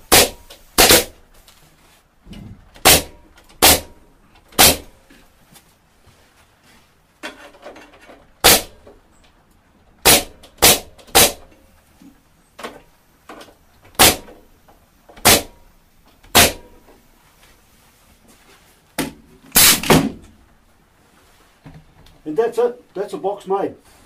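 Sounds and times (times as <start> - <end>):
pneumatic stapler firing into wood: 0.0 - 1.2, 2.8 - 4.9, 8.4 - 8.8, 10.0 - 11.5, 13.9 - 14.4, 15.2 - 15.6, 16.3 - 16.8, 19.5 - 20.2.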